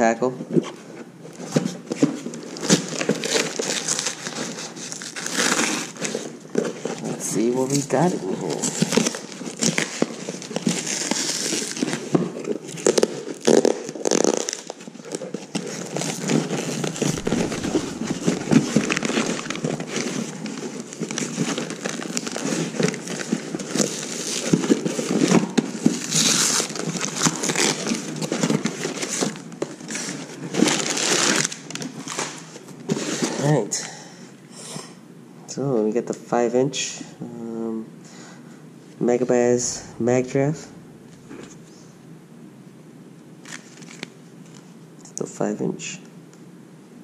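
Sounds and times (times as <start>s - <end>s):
packing paper crinkling: 1.9s - 33.5s, 43.4s - 44.7s
packing tape peeling: 2.4s - 7.0s, 8.4s - 32.4s.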